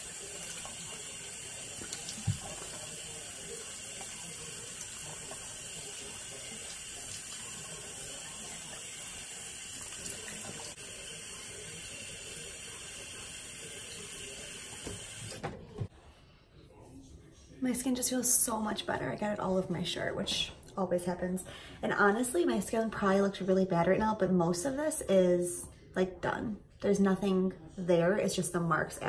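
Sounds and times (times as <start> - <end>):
sink tap running: 0.0 - 15.6.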